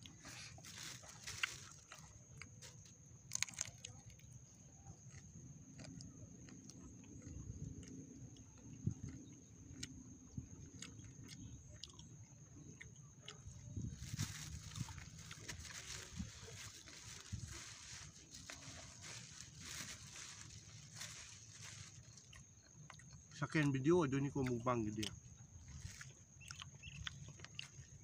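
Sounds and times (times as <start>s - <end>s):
small clicks and crunches: 0.0s - 4.4s, 13.2s - 23.8s
person chewing fried chicken: 0.0s - 23.4s, 24.4s - 28.0s.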